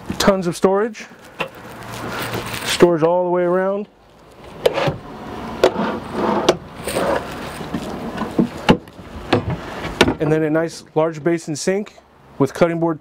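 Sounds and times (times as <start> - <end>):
drawer sliding: 4.5 - 10.2.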